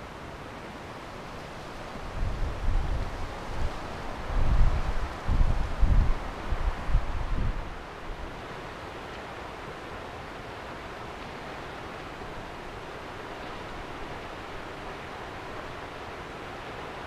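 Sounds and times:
wind rushing over lake: 0:00.0 - 0:17.0
wind buffeting microphone: 0:02.1 - 0:07.8.

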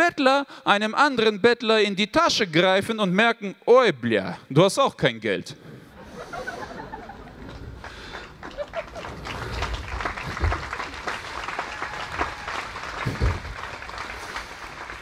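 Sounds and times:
audience applauding: 0:06.1 - 0:15.0
low thuds: 0:07.2 - 0:14.4.

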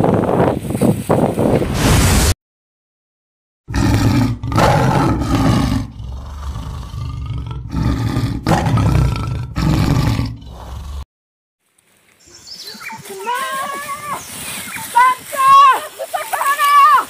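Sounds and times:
tiger roaring: 0:03.7 - 0:11.0.

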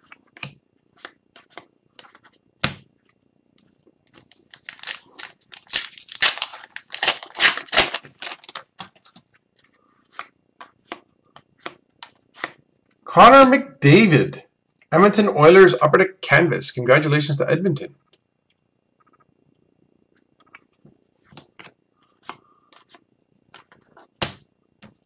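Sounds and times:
card pack wrapper tearing and crinkling: 0:04.2 - 0:09.2.

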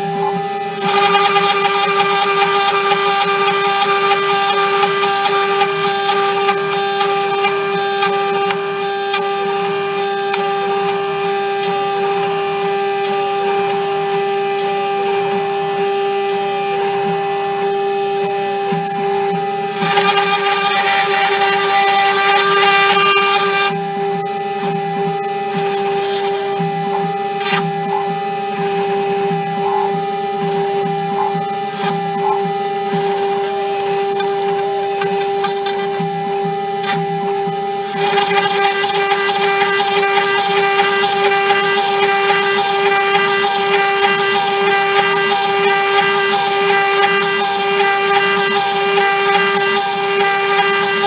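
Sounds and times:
router spindle whine: 0:00.0 - 0:51.0
stepper motors buzzing: 0:00.0 - 0:51.0
hiss of cutting plastic: 0:25.6 - 0:28.2.

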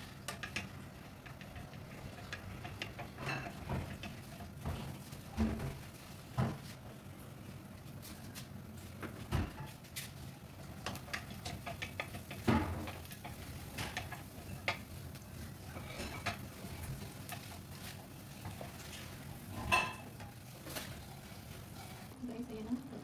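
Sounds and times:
spatula scraping frying pan: 0:00.0 - 0:05.9, 0:10.6 - 0:22.2.

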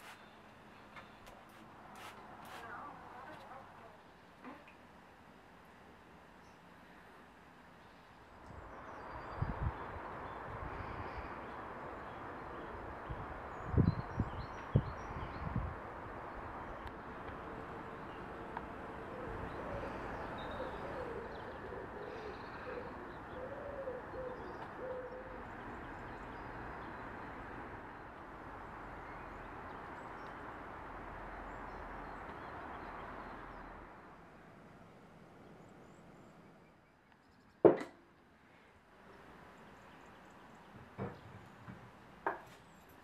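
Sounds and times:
steady outdoor hiss: 0:00.0 - 0:43.0
bird cooing: 0:19.0 - 0:25.6.

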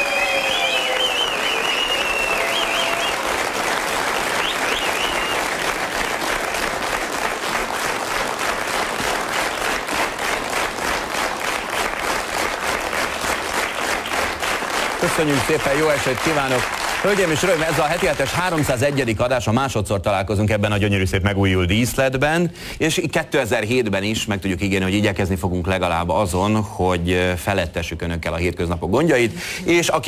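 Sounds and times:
audience applauding: 0:00.0 - 0:19.5.

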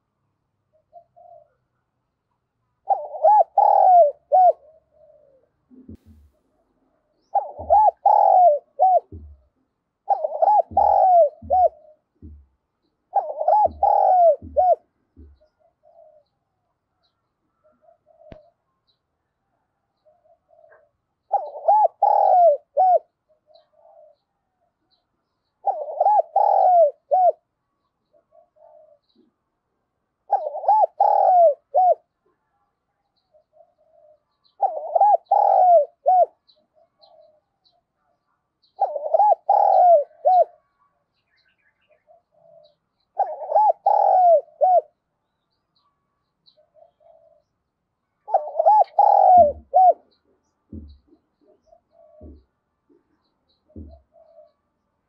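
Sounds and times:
dove cooing: 0:00.6 - 0:01.8, 0:02.8 - 0:18.6, 0:20.0 - 0:24.3, 0:24.9 - 0:27.5, 0:28.1 - 0:29.5, 0:30.2 - 0:32.4, 0:33.3 - 0:45.0, 0:46.4 - 0:47.6, 0:48.2 - 0:54.7
low thumps: 0:07.6 - 0:08.0, 0:09.0 - 0:09.5, 0:10.4 - 0:12.6, 0:13.5 - 0:15.4, 0:50.7 - 0:51.2, 0:52.2 - 0:52.5, 0:53.7 - 0:54.0.

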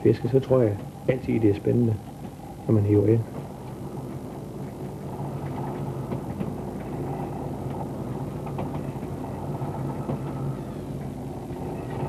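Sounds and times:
boat engine and winch hum: 0:03.4 - 0:12.0.

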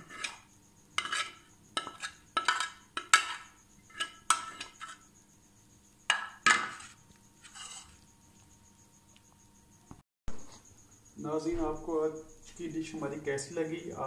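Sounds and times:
spoon clanking on metal pan: 0:01.0 - 0:05.0, 0:06.1 - 0:06.9.

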